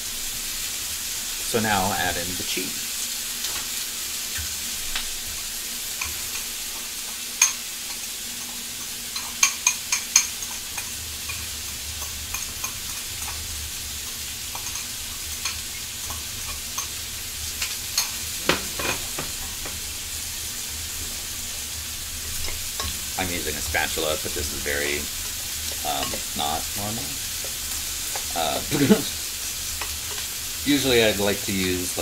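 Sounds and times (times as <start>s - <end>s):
hot pan sizzling: 0.0s - 32.0s
spatula knocking and scraping pan: 17.6s - 19.9s.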